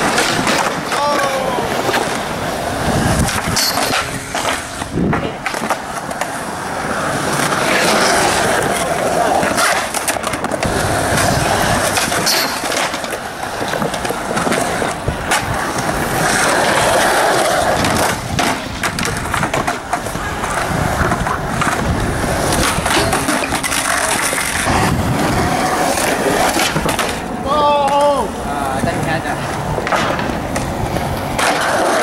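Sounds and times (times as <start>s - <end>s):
skateboard clacking on ground: 0.0s - 32.0s
skateboard wheels rolling on concrete: 0.0s - 32.0s.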